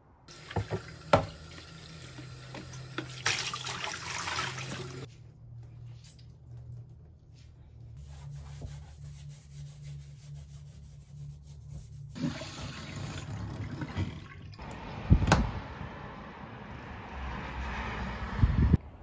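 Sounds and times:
tap water running into basin: 0:00.3 - 0:05.1, 0:12.2 - 0:14.7.

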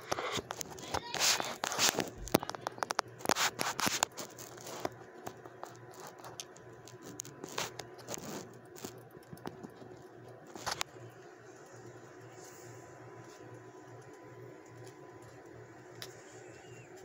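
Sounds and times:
rat scrabbling on fabric: 0:00.0 - 0:11.0.

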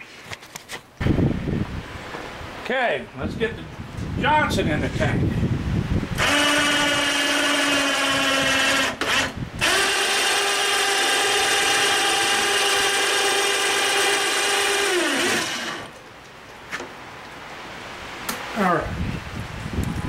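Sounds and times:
electric hoist motor whining: 0:06.2 - 0:16.0.

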